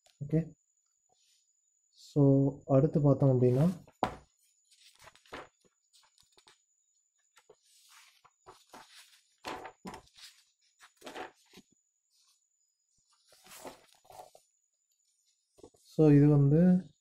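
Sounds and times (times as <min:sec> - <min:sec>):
paper pages rustling: 0:04.7 - 0:06.6, 0:07.3 - 0:12.4, 0:13.0 - 0:14.5.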